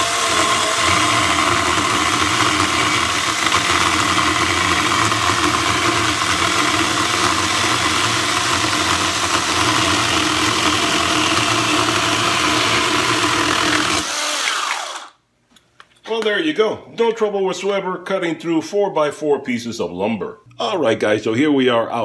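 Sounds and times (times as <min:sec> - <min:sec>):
chainsaw cutting wood: 0:00.0 - 0:15.2
motor winding down whine: 0:00.0 - 0:15.2.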